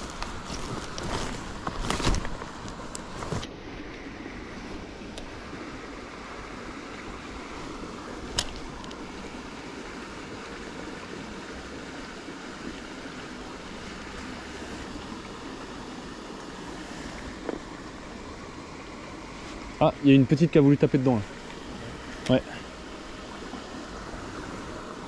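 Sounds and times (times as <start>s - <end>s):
stream rushing over cascade: 0.0s - 25.0s.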